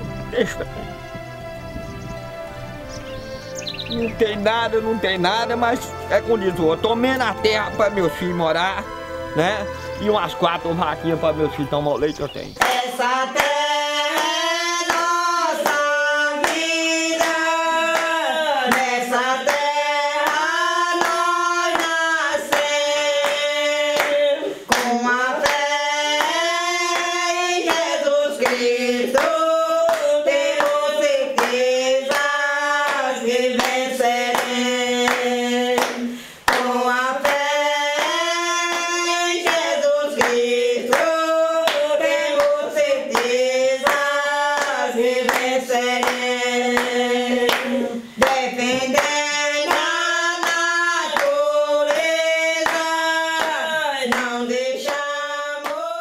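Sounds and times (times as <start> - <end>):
people singing together: 0.0 - 1.2, 12.5 - 56.0
hand claps: 12.6 - 55.8.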